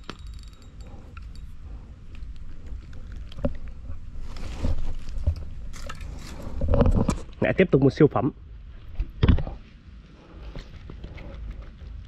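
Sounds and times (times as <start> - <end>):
fishing reel clicking: 0.0 - 1.6
steady low rumble: 0.0 - 12.0.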